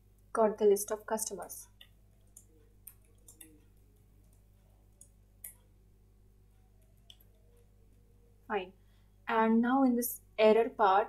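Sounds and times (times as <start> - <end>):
keyboard keys clicking: 2.3 - 3.6.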